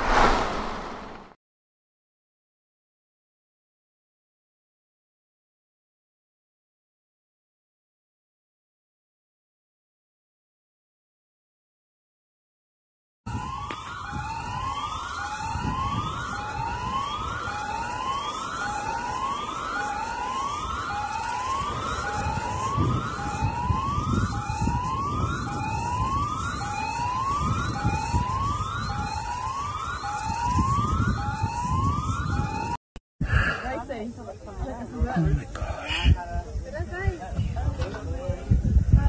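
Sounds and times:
low rumble: 0.0 - 1.4
siren rising whoop: 13.3 - 32.8.

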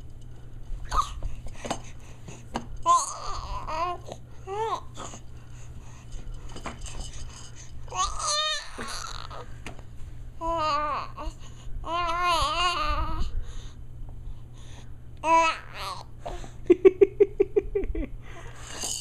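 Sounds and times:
baby babbling and squealing: 0.9 - 1.2, 2.9 - 5.2, 7.9 - 9.5, 11.9 - 13.3.

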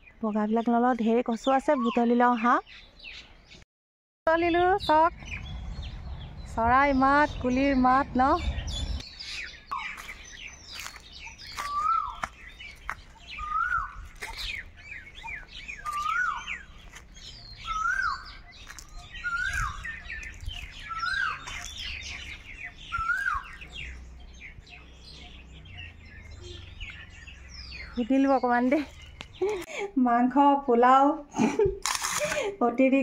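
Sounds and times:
birds chirping and twittering: 0.0 - 3.6, 4.3 - 33.0
bird rising call: 8.6 - 28.0.

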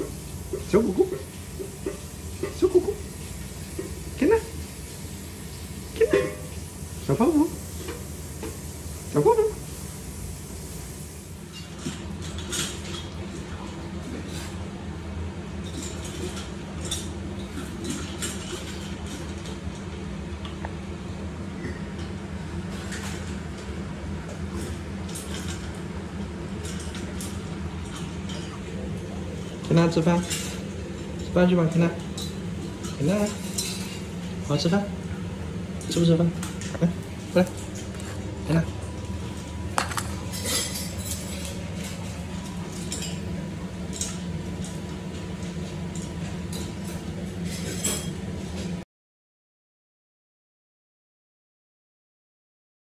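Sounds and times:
steady low hum: 0.0 - 48.8
metal bowl set down clink: 39.8 - 41.5.

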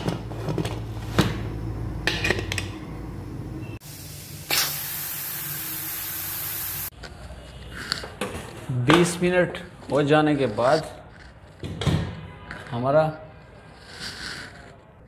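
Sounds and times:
pressure cooker steam hiss: 3.8 - 6.9.

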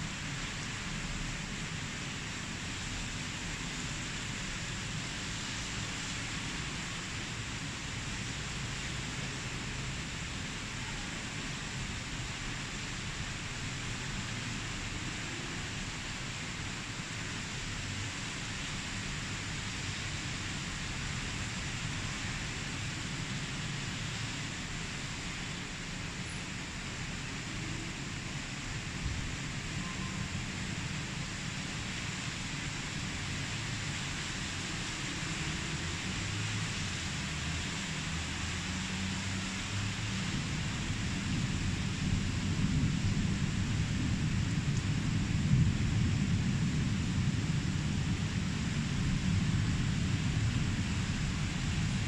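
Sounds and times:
rain falling: 0.0 - 52.0.

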